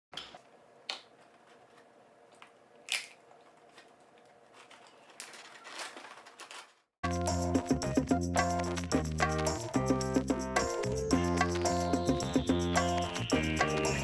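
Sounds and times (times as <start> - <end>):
rustling and handling noise: 0.3 - 6.9
crab shells cracking: 2.9 - 3.9.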